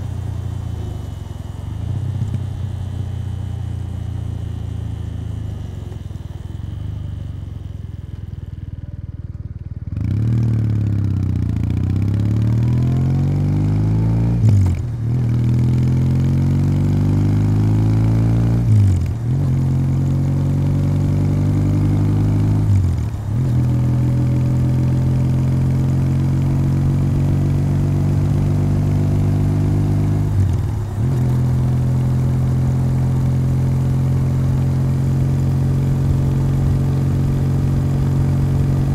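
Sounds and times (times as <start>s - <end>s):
motorcycle engine revving: 9.8s - 38.9s.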